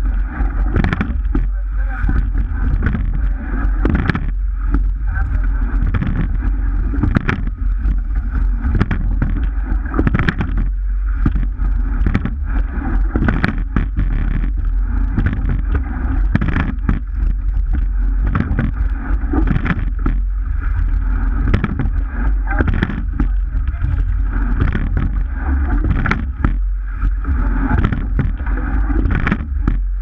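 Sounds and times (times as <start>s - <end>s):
water rushing along hull: 0.0s - 30.0s
wind rumbling on microphone: 0.0s - 30.0s
oars knocking: 0.7s - 3.2s, 5.8s - 12.5s, 13.1s - 20.3s, 21.4s - 30.0s.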